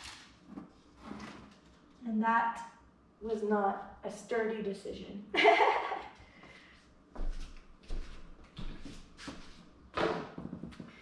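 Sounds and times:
plant pots scraping and clattering: 0:00.5 - 0:01.7.

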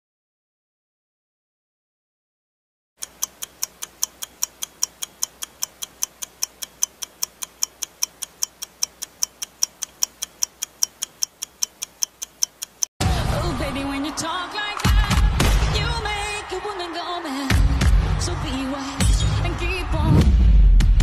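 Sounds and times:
countdown timer ticking: 0:03.0 - 0:12.9.

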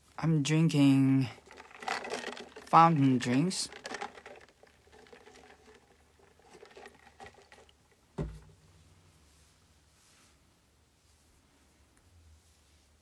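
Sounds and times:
handling rustling and clicks: 0:01.3 - 0:08.1
low thump: 0:08.2 - 0:08.6.

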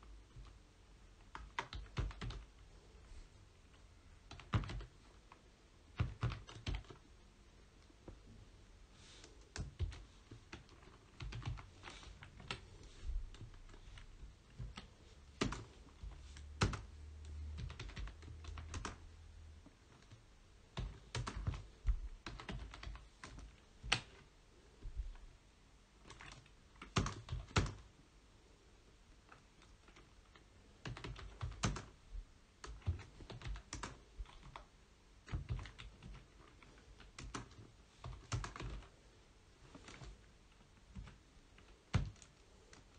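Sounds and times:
keyboard typing: 0:01.2 - 0:02.6, 0:03.7 - 0:07.1, 0:09.4 - 0:19.1, 0:19.7 - 0:24.2, 0:26.0 - 0:27.9, 0:29.3 - 0:32.0, 0:32.6 - 0:38.9, 0:39.7 - 0:42.9.

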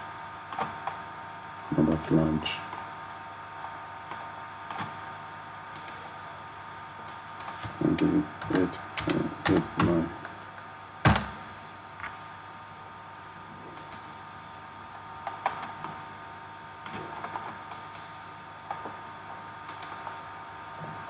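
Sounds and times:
background hum: 0:00.0 - 0:21.0
keyboard and mouse clicks: 0:05.8 - 0:06.0, 0:07.1 - 0:10.0, 0:13.8 - 0:14.1, 0:16.8 - 0:18.1, 0:19.7 - 0:20.0.

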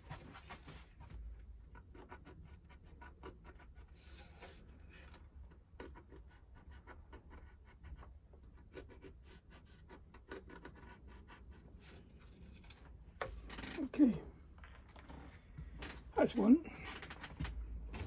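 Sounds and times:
pencil scratching on wood: 0:01.6 - 0:12.6.

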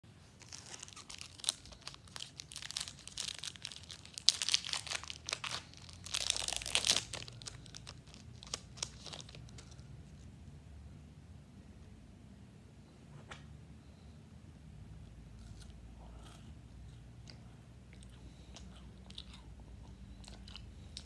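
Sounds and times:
wrapper crinkling: 0:00.3 - 0:10.3
wrapper tearing: 0:00.4 - 0:09.8.

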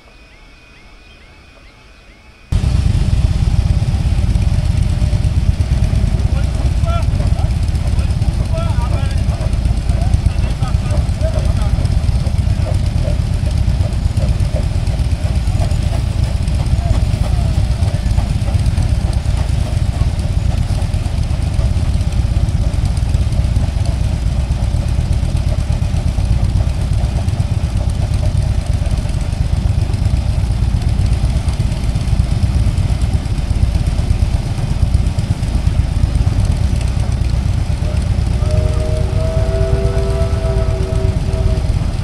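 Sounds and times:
motorcycle engines idling: 0:02.5 - 0:42.0.

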